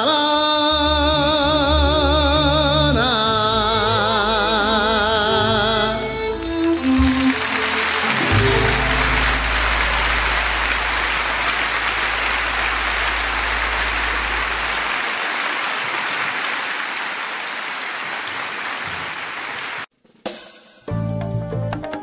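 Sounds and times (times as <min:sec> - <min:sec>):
audience applauding: 0:05.3 - 0:19.9
low rumble: 0:08.9 - 0:14.9.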